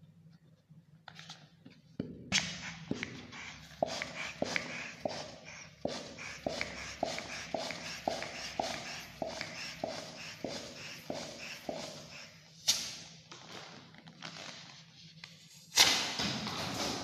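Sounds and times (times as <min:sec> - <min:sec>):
hand pump strokes: 0:02.4 - 0:12.4.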